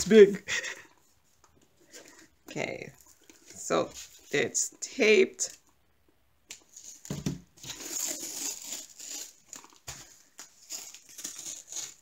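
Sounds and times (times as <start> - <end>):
plastic film crinkling: 6.6 - 12.0.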